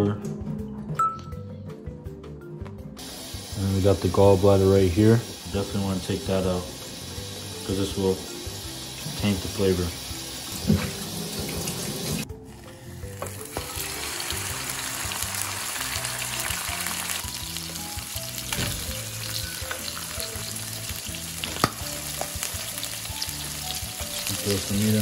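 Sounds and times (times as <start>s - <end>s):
frying in hot oil sizzling: 3.0s - 25.0s
tap water running into sink: 4.0s - 12.2s, 13.1s - 17.4s.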